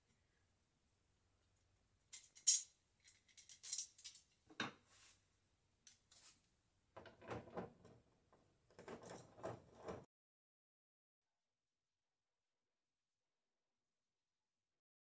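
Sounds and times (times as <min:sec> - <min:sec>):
screw scraping and rattling: 0:07.0 - 0:10.1.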